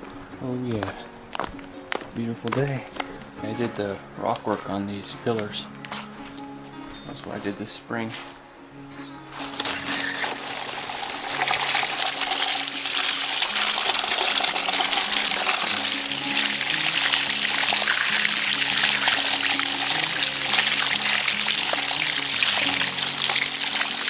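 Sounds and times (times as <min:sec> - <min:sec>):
soft background music: 0:00.0 - 0:24.0
water running from hose: 0:09.3 - 0:24.0
water splashing over hands: 0:09.4 - 0:24.0.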